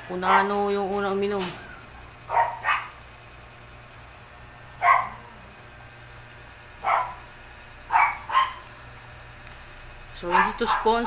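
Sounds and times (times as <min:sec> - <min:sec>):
dog barking: 0:02.3 - 0:03.0, 0:04.8 - 0:05.3, 0:06.8 - 0:07.3, 0:07.9 - 0:08.7, 0:10.2 - 0:11.0.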